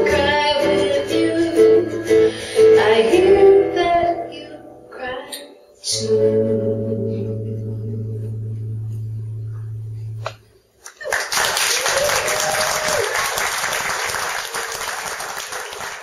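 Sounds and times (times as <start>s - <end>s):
audience applause: 10.9s - 16.0s
person cheering: 11.0s - 13.3s.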